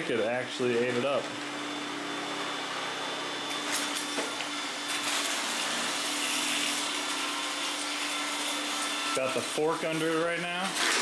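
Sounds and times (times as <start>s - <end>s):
robot vacuum humming: 0.7s - 6.1s.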